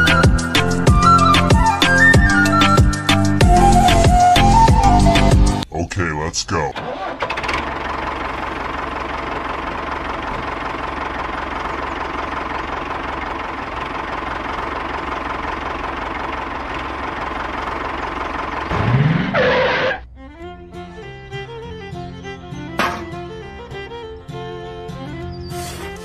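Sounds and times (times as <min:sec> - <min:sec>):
tractor engine running: 0:05.7 - 0:26.0.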